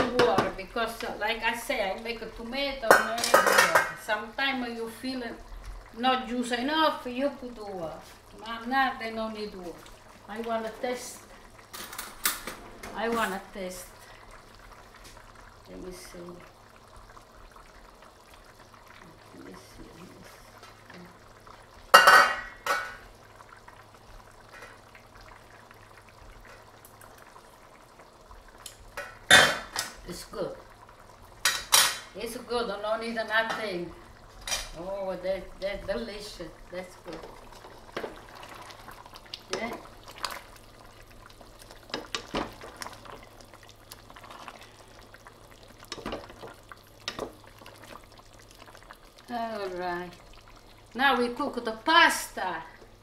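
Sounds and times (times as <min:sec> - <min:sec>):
sauce simmering in a pan: 0:00.0 - 0:53.0
wet sloshing stirring: 0:37.0 - 0:49.2.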